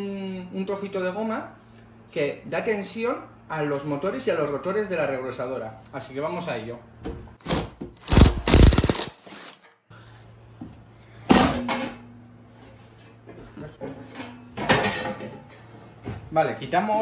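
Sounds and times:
cordless drill running: 0:08.0 - 0:09.6.

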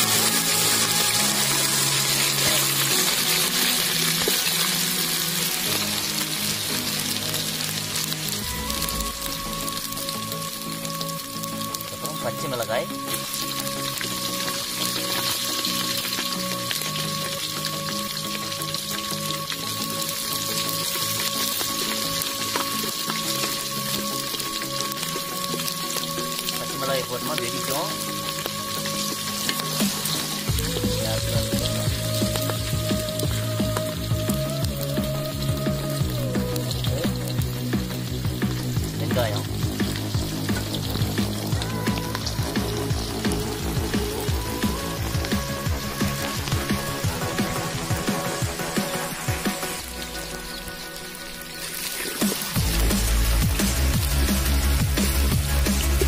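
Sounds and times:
paste sizzling in oil: 0:00.0 - 0:56.0.

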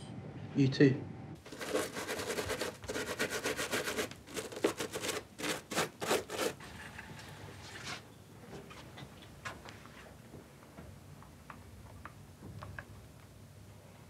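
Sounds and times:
boot being scrubbed by hand: 0:01.4 - 0:06.6.

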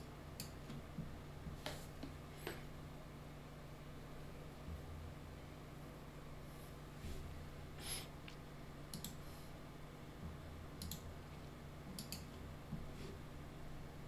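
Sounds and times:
faint low hum: 0:00.0 - 0:14.0
computer mouse clicking: 0:08.9 - 0:09.2, 0:10.8 - 0:11.1, 0:11.9 - 0:12.4.

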